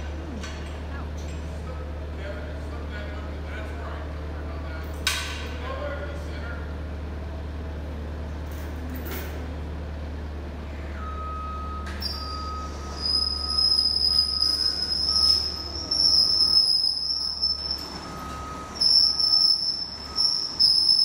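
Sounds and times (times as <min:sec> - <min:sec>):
loud high-pitched squealing: 0:12.0 - 0:21.0.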